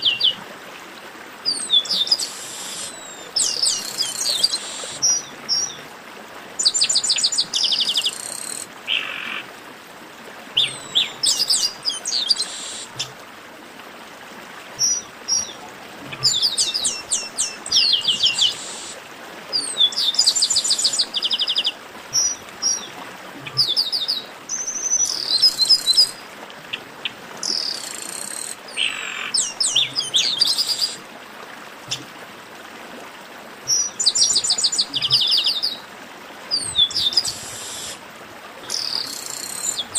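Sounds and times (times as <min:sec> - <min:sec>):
blackbird song: 0:10.6 - 0:13.1, 0:14.8 - 0:19.0, 0:36.5 - 0:38.0.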